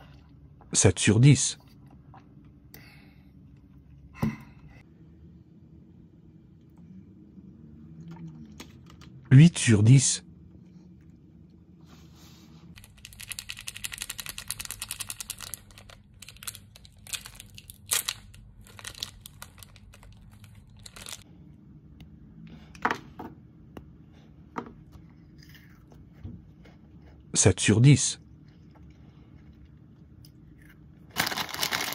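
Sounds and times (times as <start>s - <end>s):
plastic wrapper crinkling and tearing: 12.8s - 21.2s, 31.1s - 31.9s.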